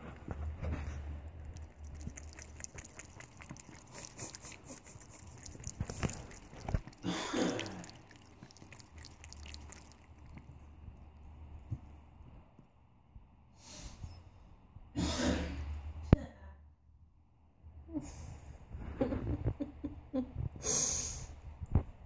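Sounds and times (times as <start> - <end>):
cat lapping water: 0.8 - 11.9
tap water running into sink: 1.5 - 4.4, 5.3 - 10.5.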